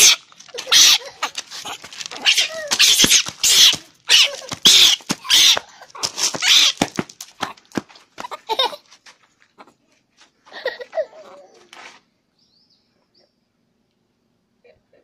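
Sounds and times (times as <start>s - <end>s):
baby monkey harsh breathy calls: 0.0s - 6.8s.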